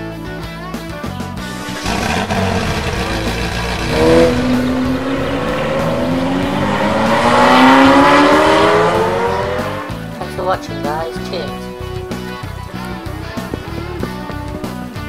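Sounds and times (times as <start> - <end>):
sports car engine revving: 1.5 - 10.1.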